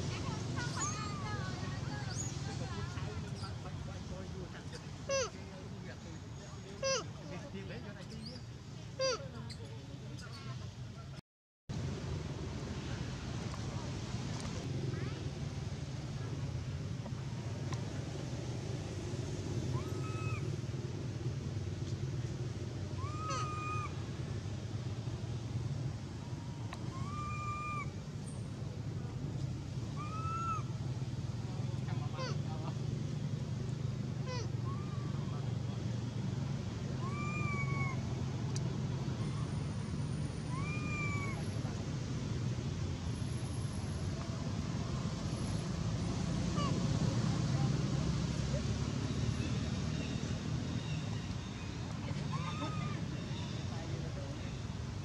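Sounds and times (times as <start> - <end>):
monkey coo call: 5.1 - 5.4, 6.8 - 7.2, 9.0 - 9.6, 19.7 - 20.6, 22.9 - 24.1, 26.3 - 28.0, 29.9 - 30.8, 34.2 - 35.4, 36.9 - 38.1, 40.4 - 41.5, 52.1 - 53.7
macaque coo: 6.8 - 7.1, 23.0 - 23.9, 37.0 - 38.0, 52.1 - 53.0.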